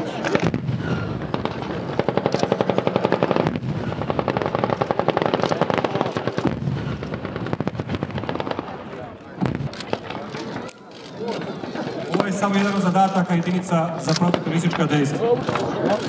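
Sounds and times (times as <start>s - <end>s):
machine-gun fire in rapid bursts: 0.0s - 10.3s.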